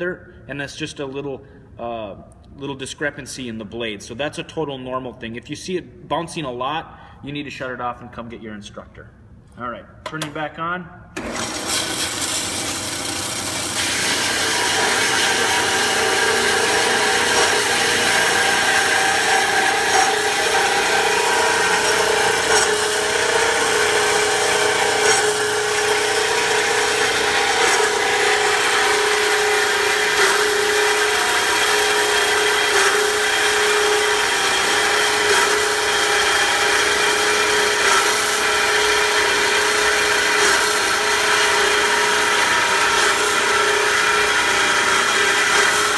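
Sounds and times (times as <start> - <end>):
bandsaw cutting steel tube: 11.2 - 45.9.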